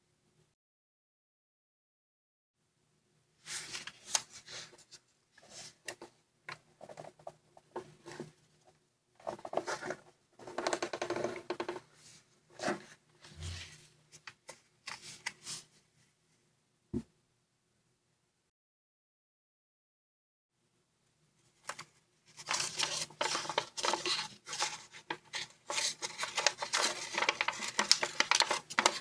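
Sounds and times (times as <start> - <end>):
paper rustling and crinkling: 3.5 - 5.8, 21.6 - 29.0.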